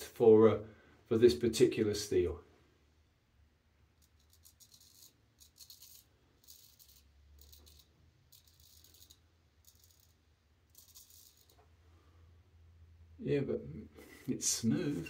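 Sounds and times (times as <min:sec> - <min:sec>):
straight razor scraping stubble: 0:04.0 - 0:10.1.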